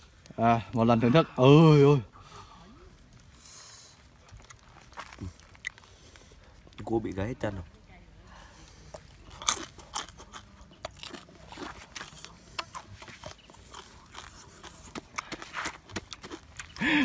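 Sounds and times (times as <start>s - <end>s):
person chewing crunchy food: 4.0s - 6.8s, 8.7s - 17.0s.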